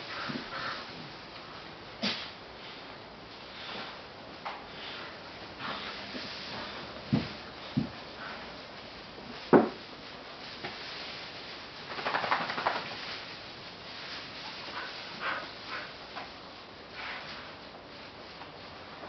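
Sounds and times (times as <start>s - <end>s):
rustling: 0.0s - 19.0s
dogs scuffling in hay: 4.8s - 19.0s.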